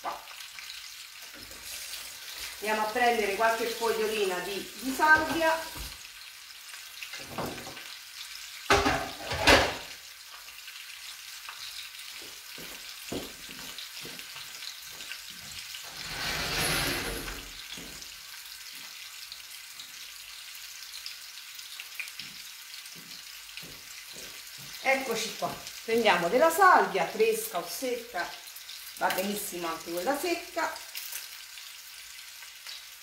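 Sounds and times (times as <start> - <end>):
meat sizzling in oil: 0.0 - 33.0.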